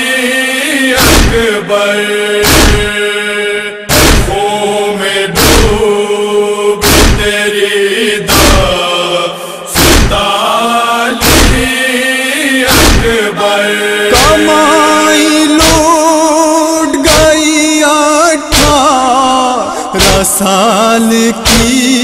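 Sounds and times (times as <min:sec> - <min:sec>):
voices chanting long notes: 0:00.0 - 0:17.4
rhythmic chest-beating thuds: 0:01.0 - 0:03.1, 0:03.9 - 0:04.6, 0:05.3 - 0:06.0, 0:06.8 - 0:07.6, 0:08.2 - 0:09.0, 0:09.7 - 0:10.5, 0:11.2 - 0:11.8, 0:12.7 - 0:14.8, 0:15.5 - 0:16.1, 0:17.0 - 0:17.5, 0:18.4 - 0:22.0.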